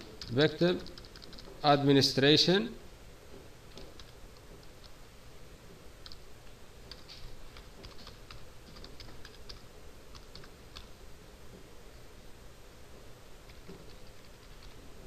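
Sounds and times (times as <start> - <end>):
keyboard keys clicking: 0.2 - 1.6, 6.9 - 10.9, 13.5 - 14.8.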